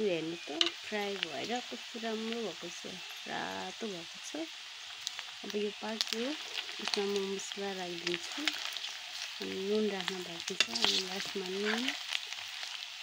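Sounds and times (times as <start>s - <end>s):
meat sizzling in a wok: 0.0s - 13.0s
metal spatula scraping pan: 10.5s - 12.0s.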